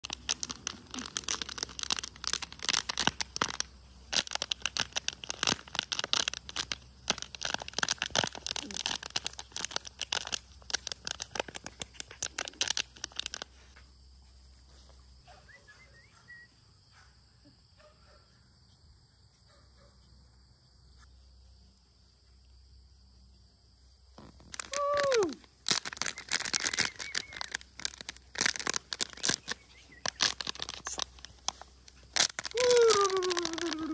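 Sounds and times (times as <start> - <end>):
rustling and crackling clicks: 0.0 - 14.5, 24.0 - 33.9.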